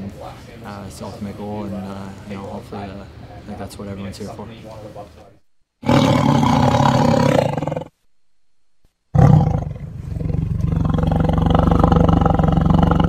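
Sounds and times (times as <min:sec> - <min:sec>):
tiger roaring: 0:05.8 - 0:07.9, 0:09.2 - 0:13.0.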